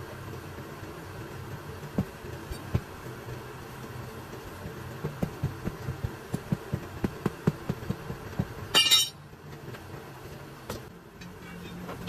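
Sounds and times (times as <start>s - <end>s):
low steady hum: 0.0s - 12.0s
tool knocking on tire rim: 2.0s - 2.9s, 5.0s - 8.8s.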